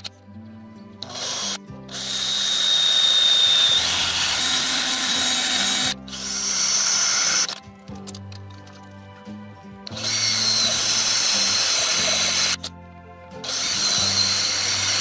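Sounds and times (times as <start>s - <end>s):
drill press cutting metal: 1.0s - 7.6s, 9.9s - 12.7s, 13.4s - 15.0s
high squeal: 1.1s - 7.6s.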